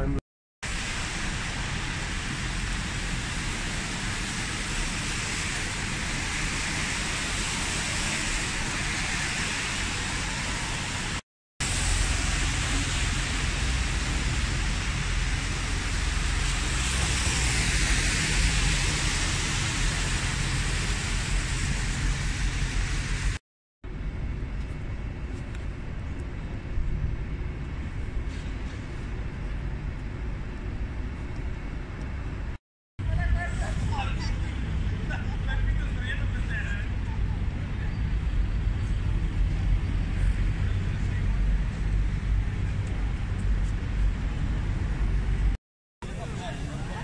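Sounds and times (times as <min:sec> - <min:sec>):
low rumble of engines: 0:00.0 - 0:47.0
rain and tyres hissing on wet road: 0:00.6 - 0:23.4, 0:33.1 - 0:47.0.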